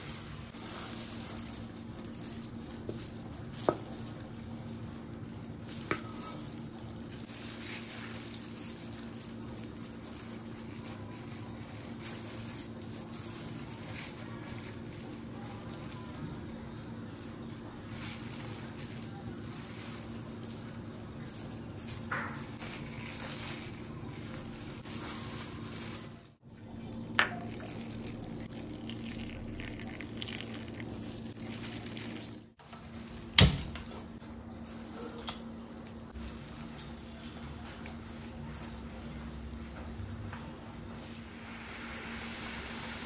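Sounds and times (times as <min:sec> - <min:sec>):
kitchen cooking sounds: 0:00.0 - 0:43.0
water heating in a pan: 0:40.8 - 0:43.0.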